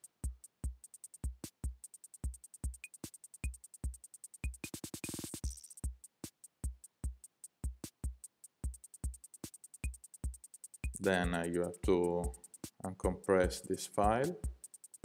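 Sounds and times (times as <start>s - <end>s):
hi-hat ticks: 0.0s - 15.0s
electronic background music: 10.8s - 12.4s.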